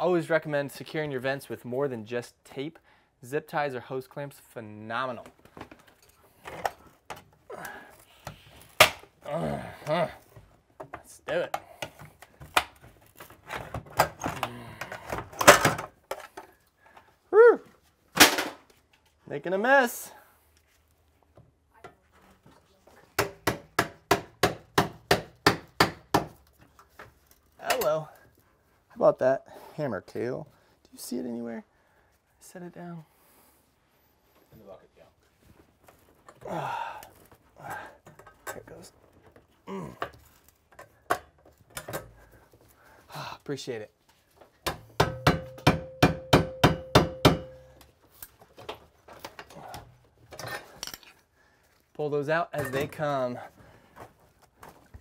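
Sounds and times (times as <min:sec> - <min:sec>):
hammer striking: 0:44.6 - 0:47.7.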